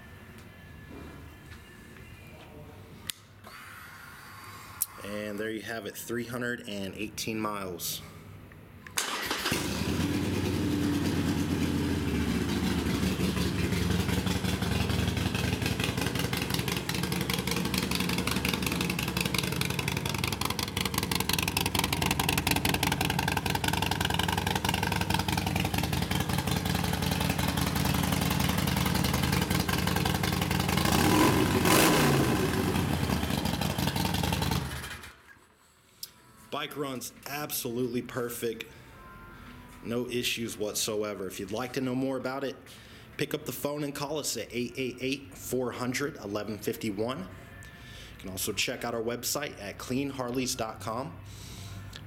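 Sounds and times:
motorcycle engine idling and revving: 9.5 - 35.2.

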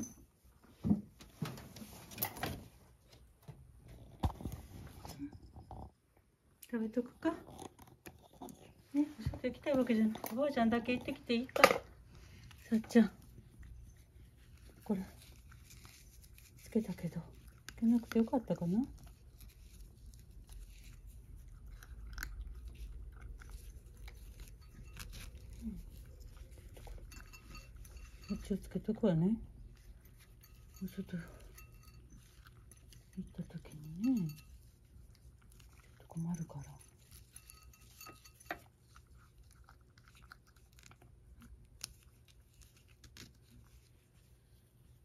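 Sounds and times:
cat crunching dry kibble: 11.1 - 28.2, 31.2 - 44.4.

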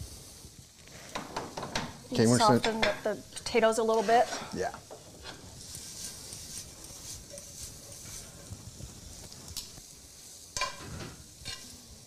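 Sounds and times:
vegetables sizzling in a skillet: 0.0 - 12.0
metal utensil scraping pan: 2.4 - 8.6, 10.6 - 11.8.

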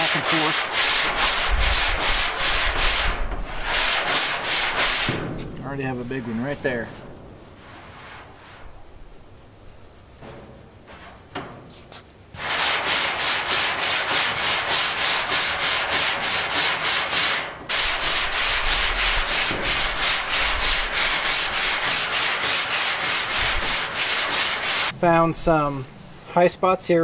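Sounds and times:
sanding block rasping on metal: 0.0 - 5.2, 12.4 - 25.0.

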